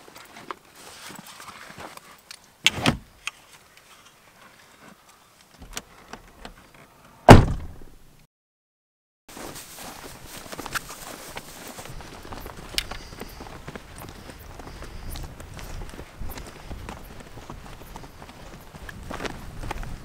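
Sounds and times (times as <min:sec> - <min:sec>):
truck door slamming: 0:07.3 - 0:07.9.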